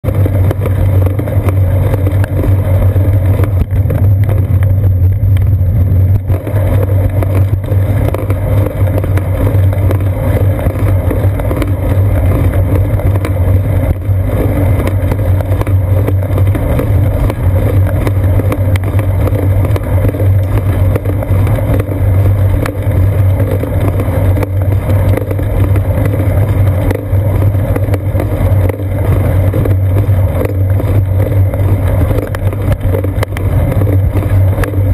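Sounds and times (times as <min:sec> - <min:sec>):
road vibration and wind rumble: 0:00.0 - 0:34.9.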